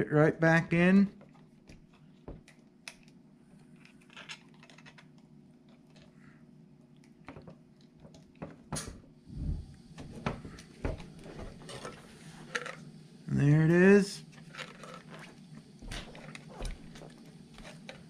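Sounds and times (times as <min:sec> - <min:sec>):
plastic parts clicking and rustling: 0:01.8 - 0:06.1, 0:14.4 - 0:15.3.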